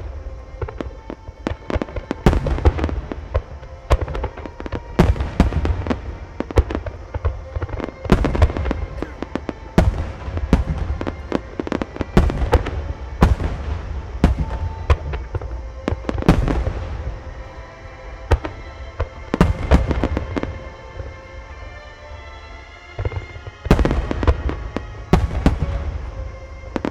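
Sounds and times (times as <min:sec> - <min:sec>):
fireworks booms and cracks: 0:00.0 - 0:17.6, 0:18.2 - 0:21.1, 0:23.0 - 0:26.9
fireworks crackling: 0:00.0 - 0:26.9.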